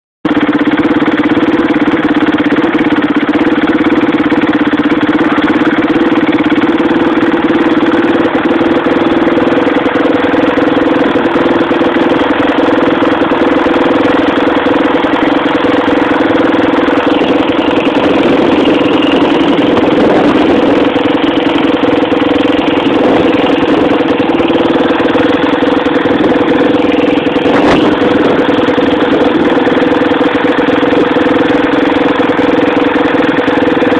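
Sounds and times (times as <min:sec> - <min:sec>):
engine idling: 0:00.3 - 0:33.9.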